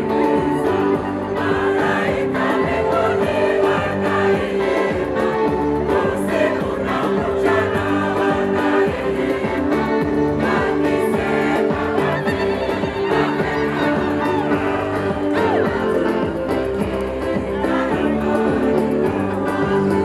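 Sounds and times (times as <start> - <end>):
choir singing a hymn: 0.0 - 20.0
instrumental backing: 0.0 - 20.0.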